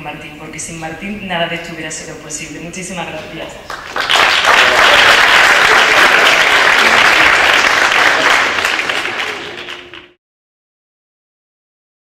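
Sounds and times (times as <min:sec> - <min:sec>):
audience applauding: 0:03.7 - 0:10.2.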